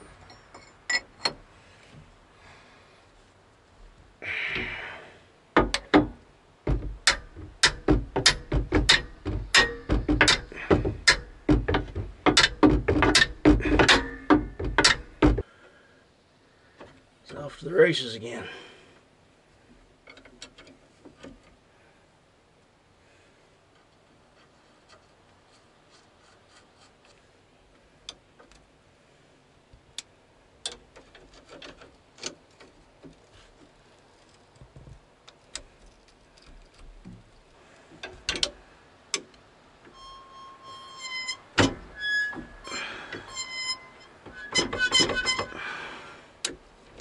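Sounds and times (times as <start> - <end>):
metallic clicks of hand tools: 7.0 - 15.1.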